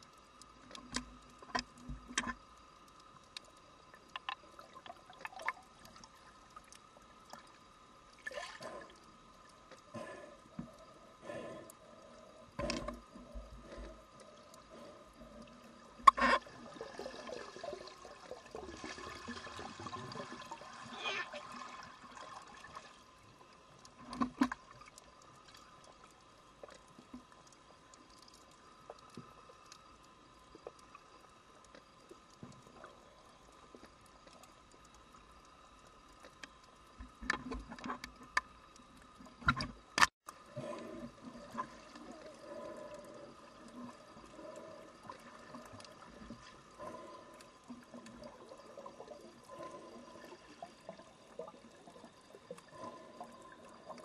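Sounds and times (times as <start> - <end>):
faint underwater hum: 0.0 - 54.0
underwater clicks: 0.3 - 6.9, 12.5 - 16.5, 36.2 - 40.4.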